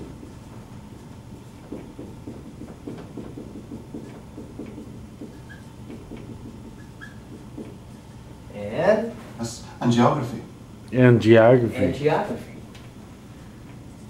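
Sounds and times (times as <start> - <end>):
marker scratching on whiteboard: 0.0 - 9.1
low room hum: 0.0 - 14.0
marker squeaks: 1.7 - 8.3.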